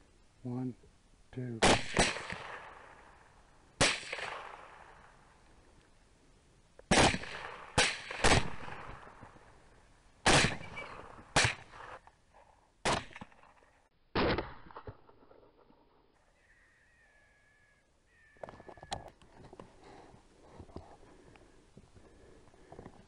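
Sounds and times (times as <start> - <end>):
rifle shots echoing: 1.6 - 5.3, 6.9 - 9.6, 10.2 - 12.0, 12.8 - 13.6.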